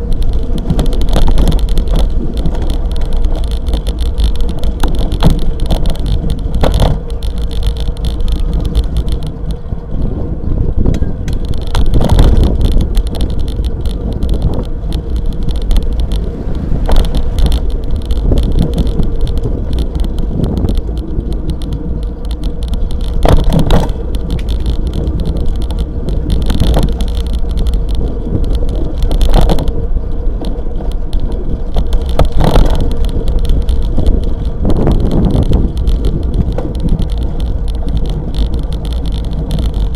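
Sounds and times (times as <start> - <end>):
road vibration and wind rumble: 0.0 - 39.9.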